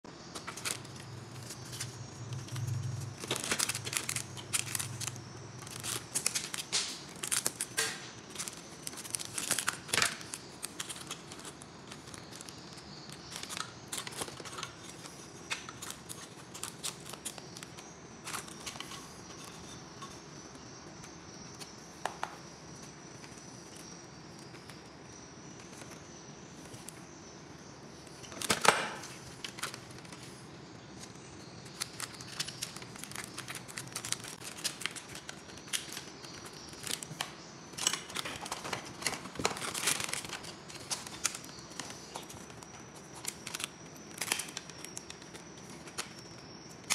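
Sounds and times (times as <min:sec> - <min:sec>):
wires clicking and scraping: 0:00.2 - 0:21.8.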